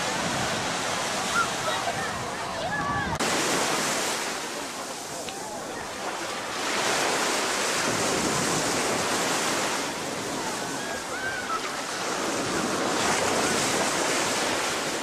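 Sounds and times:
small waves breaking on beach: 0:00.0 - 0:15.0.

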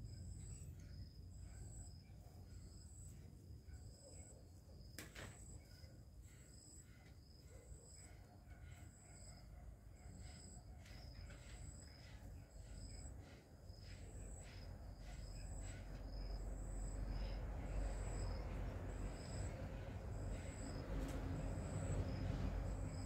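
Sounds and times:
insect chirping: 0:00.0 - 0:23.0.

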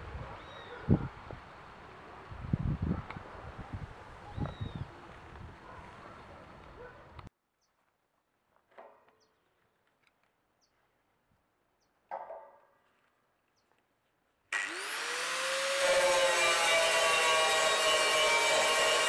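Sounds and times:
angle grinder whine: 0:14.6 - 0:19.0
grinder cutting steel: 0:14.6 - 0:19.0.

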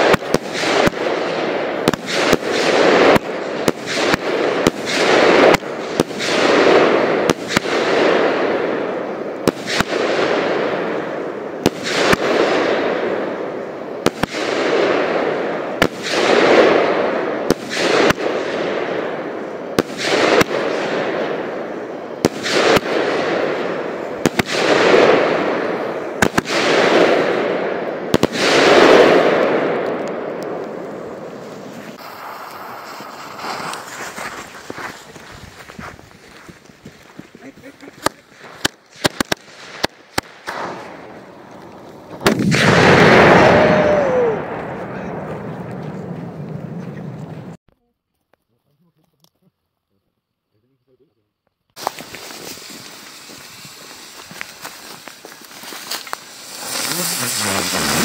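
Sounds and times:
firework crackling bursts: 0:00.0 - 0:44.4, 0:51.7 - 0:58.0
firework bangs: 0:00.0 - 0:47.6, 0:51.7 - 0:58.0.

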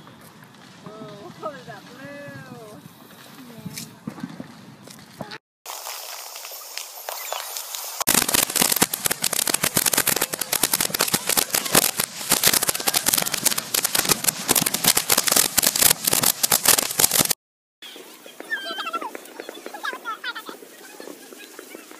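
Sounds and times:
firework crackling pops: 0:00.0 - 0:17.4, 0:18.3 - 0:21.9
firework fountain hissing: 0:05.7 - 0:21.9.

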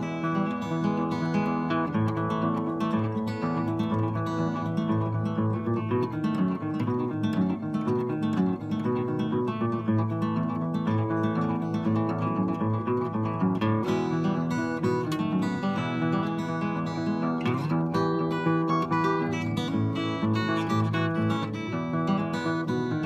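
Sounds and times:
fingerstyle acoustic guitar: 0:00.0 - 0:23.0.

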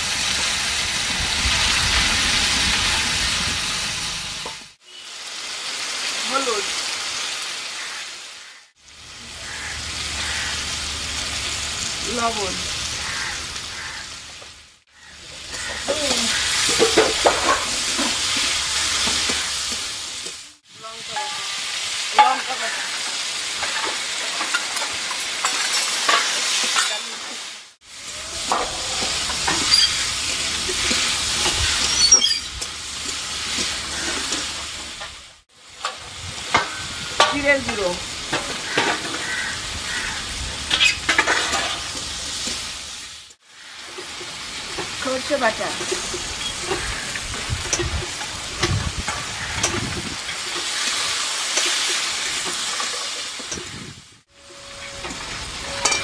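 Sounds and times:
food sizzling in a wok: 0:00.0 - 0:56.0
metal spatula scraping pan: 0:54.4 - 0:56.0.

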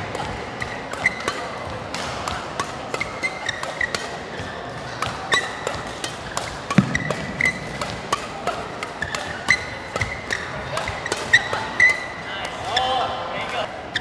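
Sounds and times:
rackets hitting shuttlecock: 0:00.0 - 0:12.8
shoe squeaks: 0:01.0 - 0:01.3, 0:03.0 - 0:05.6, 0:09.0 - 0:13.0, 0:13.8 - 0:14.0
heavy thud: 0:06.8 - 0:08.7.

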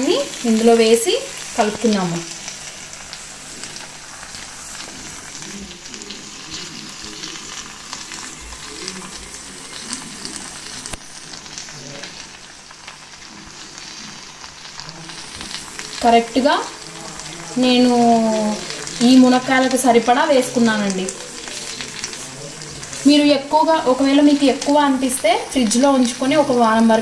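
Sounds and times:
curry sizzling in a pan: 0:00.0 - 0:27.0.

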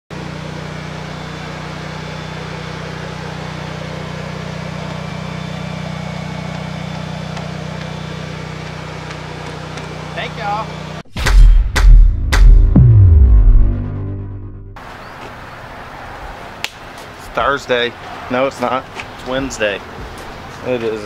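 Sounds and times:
engine idling with low hum: 0:00.1 - 0:11.0.

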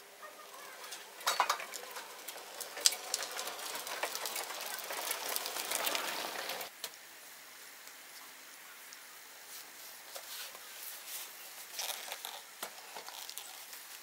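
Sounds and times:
hand truck rattling over paving: 0:00.2 - 0:06.7.

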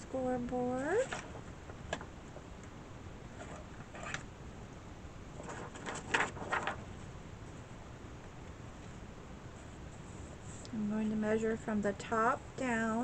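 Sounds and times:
paper rustling and scraping: 0:03.3 - 0:04.3, 0:05.3 - 0:07.0.

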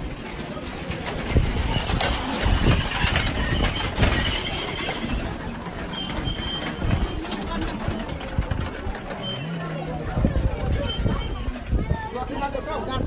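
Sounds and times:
metal prayer wheels rattling: 0:00.0 - 0:12.8
high squeak: 0:01.8 - 0:07.3.

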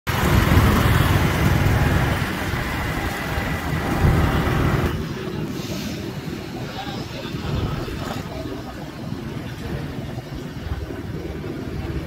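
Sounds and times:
motorcycle engine rumble: 0:00.1 - 0:12.0
hiss: 0:05.4 - 0:06.5.

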